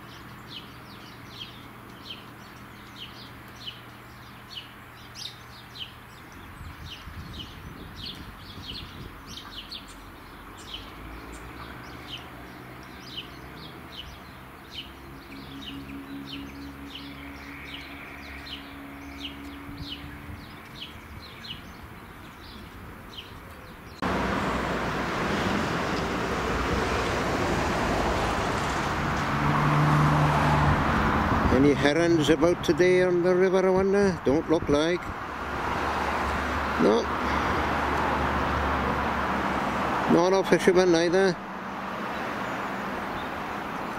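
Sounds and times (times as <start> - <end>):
small birds chirping: 0.0 - 24.1, 42.0 - 43.9
river rushing over shallows: 24.0 - 31.5.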